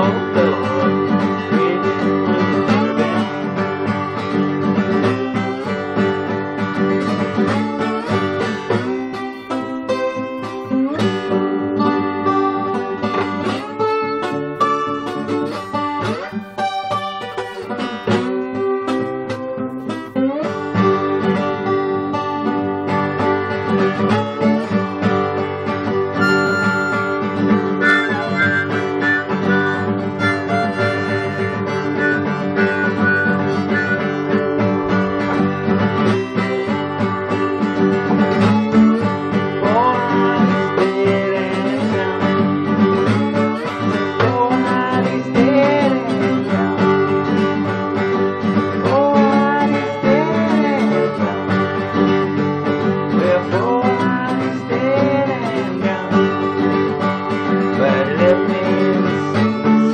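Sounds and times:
acoustic guitar strumming: 0.0s - 59.9s
harmonica playing: 26.1s - 36.9s.

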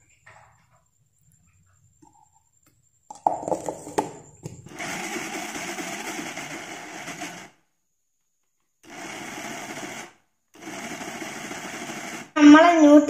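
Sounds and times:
lid and jar clattering: 3.1s - 4.6s
mixer grinder running: 3.7s - 7.6s, 8.8s - 13.0s.

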